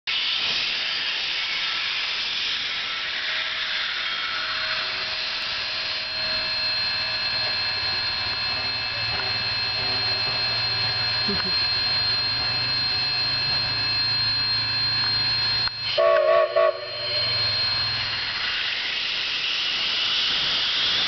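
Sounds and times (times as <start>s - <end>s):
steam locomotive hissing: 0.1s - 21.0s
high whine: 1.6s - 21.0s
low hum: 4.2s - 19.4s.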